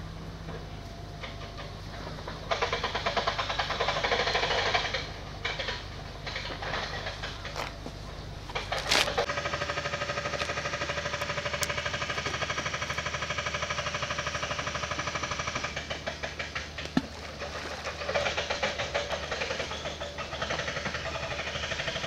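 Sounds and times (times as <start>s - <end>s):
engine running with pulsing beat: 0.0s - 22.0s.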